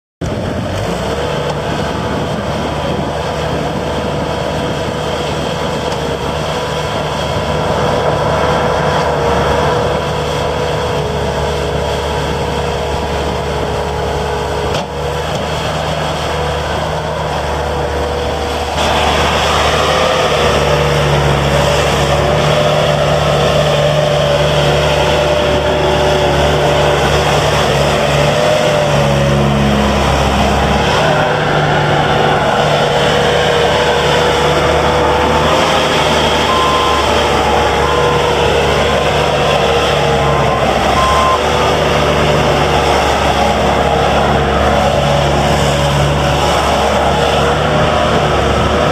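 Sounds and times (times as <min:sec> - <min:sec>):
diesel engine running: 0:00.2 - 0:48.9
steady machine whine: 0:16.3 - 0:48.9.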